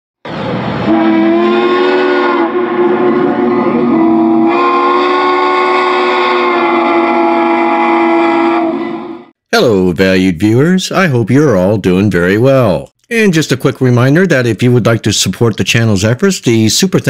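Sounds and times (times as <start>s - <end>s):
steam locomotive chime whistle: 0.8s - 9.3s.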